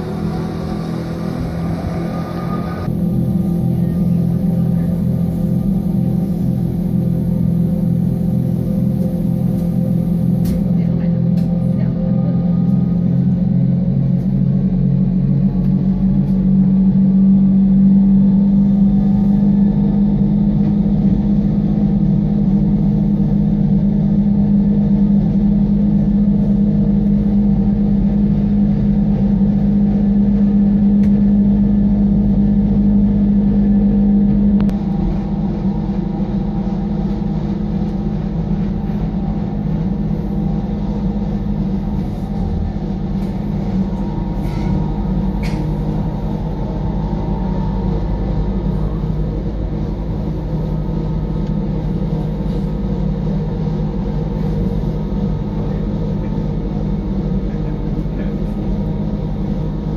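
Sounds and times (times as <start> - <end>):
train electric motor hum: 0.0 - 59.9
train running gear rumble: 0.0 - 59.9.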